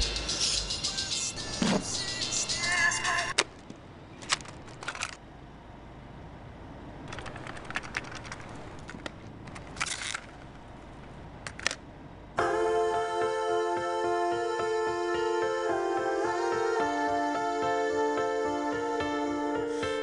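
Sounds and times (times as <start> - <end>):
backing music: 0.0 - 3.3.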